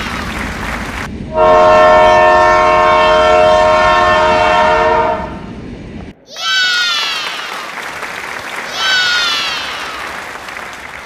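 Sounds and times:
freight train rolling past: 0:00.0 - 0:06.2
locomotive horn chord: 0:01.3 - 0:05.4.

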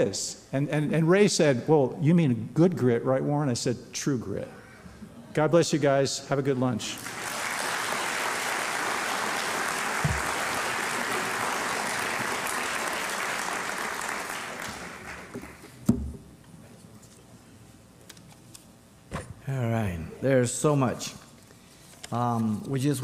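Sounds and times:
audience applauding: 0:07.0 - 0:15.6.

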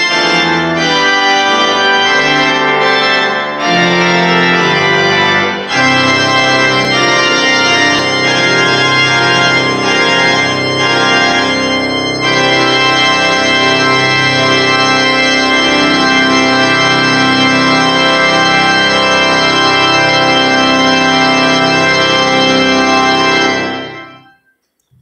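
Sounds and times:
church organ chords: 0:00.0 - 0:24.5.

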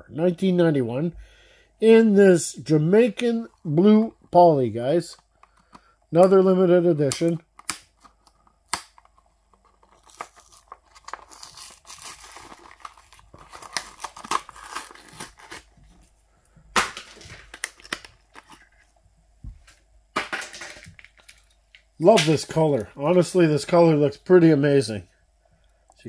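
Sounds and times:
sharp plastic snap: 0:07.1 - 0:09.1
plastic packaging crinkling: 0:07.9 - 0:15.9, 0:16.9 - 0:18.8.

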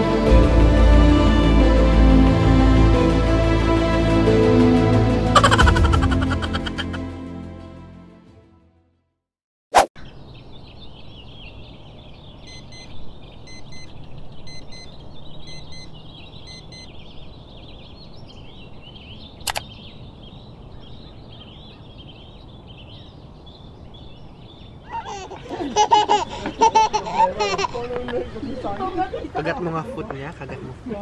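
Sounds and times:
birds chirping: 0:05.4 - 0:07.0, 0:10.0 - 0:30.8
faint electronic beep: 0:13.5 - 0:13.9, 0:14.5 - 0:16.9
sharp click: 0:19.4 - 0:19.7.

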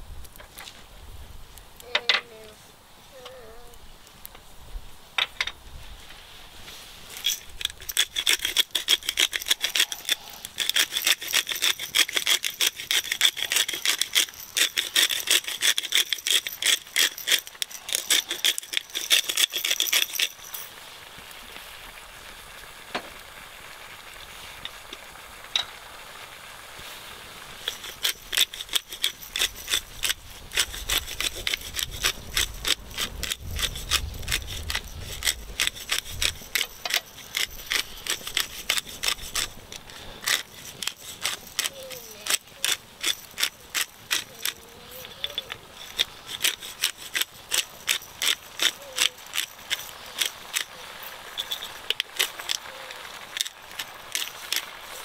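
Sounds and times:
fast scraping strokes: 0:06.1 - 0:20.7, 0:26.8 - 0:52.7.

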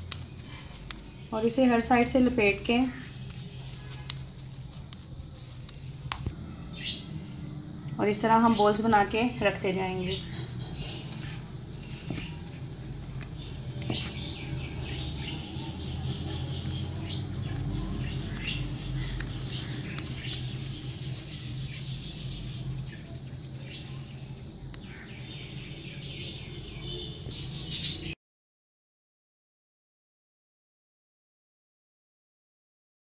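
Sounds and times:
hands rubbing and patting dough: 0:00.0 - 0:06.3, 0:10.4 - 0:14.4, 0:16.2 - 0:24.9.

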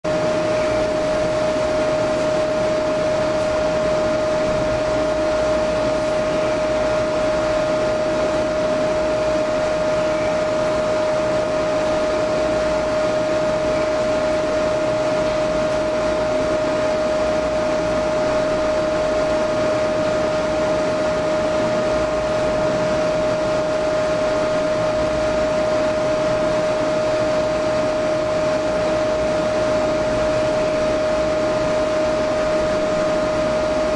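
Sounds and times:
electric fan motor whirring: 0:00.0 - 0:33.9.

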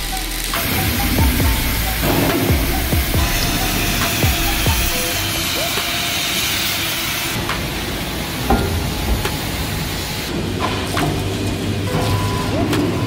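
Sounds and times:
cutting torches hissing: 0:00.0 - 0:11.9
metallic clanks: 0:07.3 - 0:13.0.

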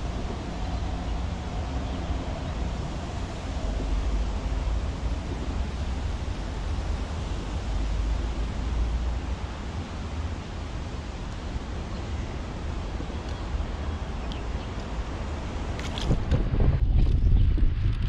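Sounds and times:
wind on microphone: 0:12.4 - 0:18.0.

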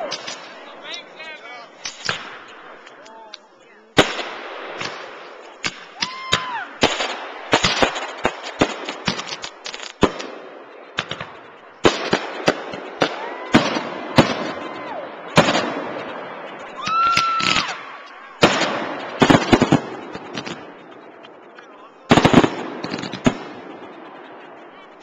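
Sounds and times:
fireworks bangs and crackles: 0:00.0 - 0:03.4, 0:04.0 - 0:24.9
firework whistle: 0:12.0 - 0:20.7.

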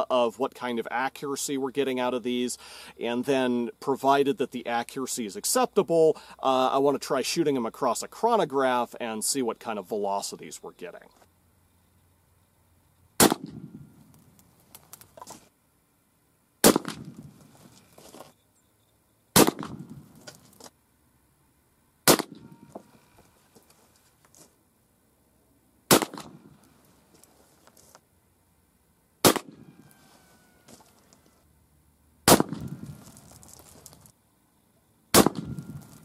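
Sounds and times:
rifle shots with rumbling echo: 0:13.2 - 0:14.0, 0:16.6 - 0:17.4, 0:19.4 - 0:20.2, 0:22.1 - 0:22.6, 0:25.9 - 0:26.6, 0:29.2 - 0:29.7, 0:32.3 - 0:33.0, 0:35.2 - 0:36.0.

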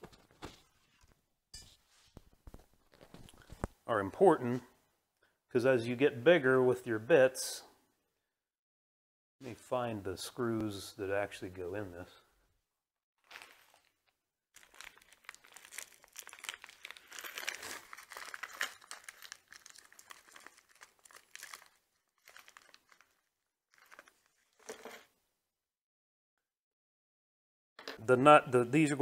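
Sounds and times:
plastic bag crinkling: 0:13.2 - 0:25.1.

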